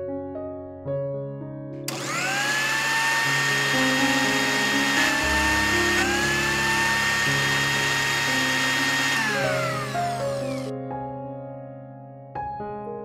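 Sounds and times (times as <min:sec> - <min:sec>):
mixer grinder motor whine: 0:01.9 - 0:10.7.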